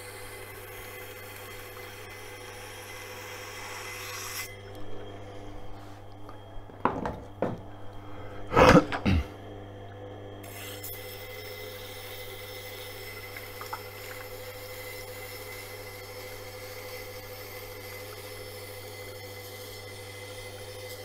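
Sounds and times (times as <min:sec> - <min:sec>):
knife grinding on wheel: 0:00.0 - 0:04.8, 0:10.4 - 0:21.0
sharpening machine humming: 0:00.0 - 0:21.0.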